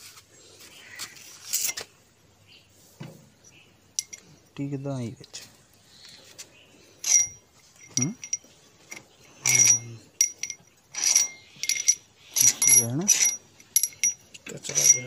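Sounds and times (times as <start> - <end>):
metal pushrods clinking: 4.0 - 4.4, 7.0 - 15.0.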